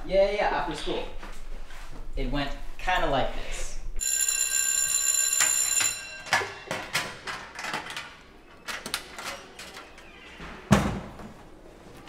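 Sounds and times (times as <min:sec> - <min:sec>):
electric school bell ringing: 0:04.0 - 0:07.3.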